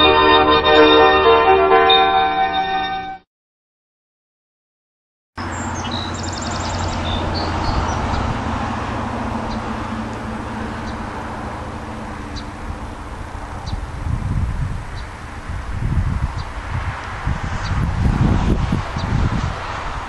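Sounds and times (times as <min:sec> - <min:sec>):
low engine drone: 0:00.0 - 0:02.7, 0:05.4 - 0:18.9
birds chirping: 0:05.4 - 0:14.0, 0:14.8 - 0:15.4
wind noise: 0:05.5 - 0:20.0.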